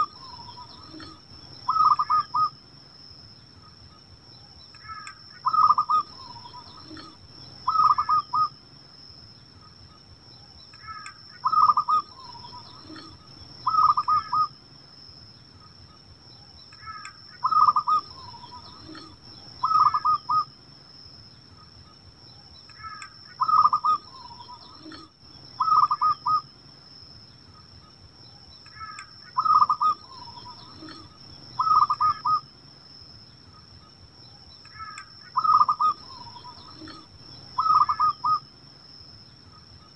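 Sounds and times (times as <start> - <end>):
dove cooing: 0.0 - 2.6, 4.8 - 8.5, 10.8 - 14.5, 16.8 - 20.5, 22.8 - 26.4, 28.8 - 32.4, 34.8 - 38.4
faint high-pitched whine: 0.0 - 39.9.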